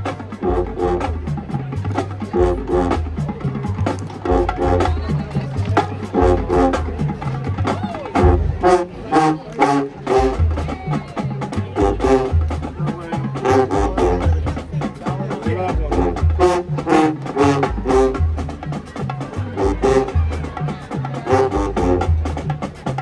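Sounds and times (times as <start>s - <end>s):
drumline strokes: 0.0s - 23.0s
marching band brass chords: 0.0s - 23.0s.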